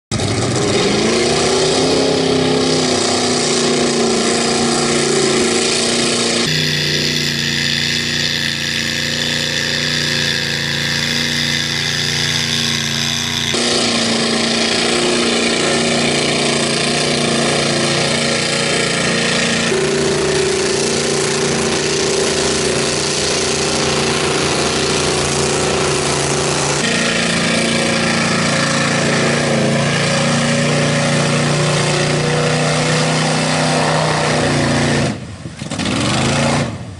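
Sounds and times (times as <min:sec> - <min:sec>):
truck engine revving hard: 0:00.1 - 0:36.9.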